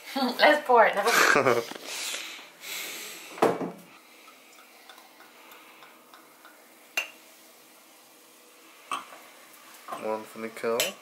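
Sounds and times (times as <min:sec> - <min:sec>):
sparkling wine pouring and fizzing: 0:03.8 - 0:11.0.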